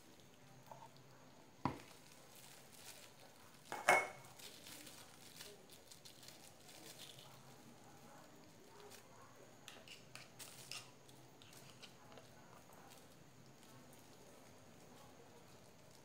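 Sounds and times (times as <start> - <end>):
plastic bag rustling: 1.7 - 9.1.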